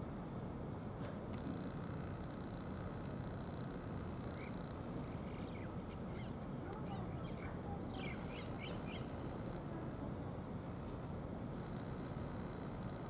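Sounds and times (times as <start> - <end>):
low outdoor rumble: 0.0 - 13.0
small birds chirping: 4.3 - 9.4.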